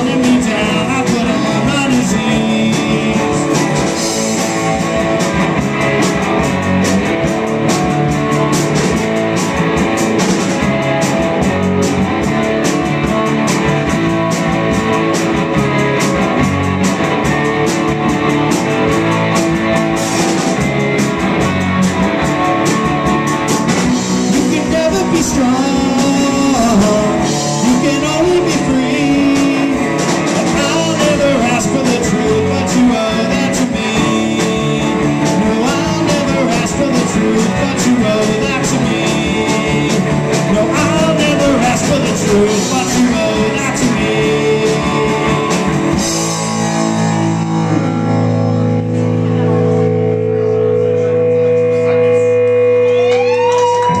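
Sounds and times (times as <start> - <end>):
man singing: 0.0 - 5.4, 23.8 - 47.1
live rock band playing: 0.0 - 54.0.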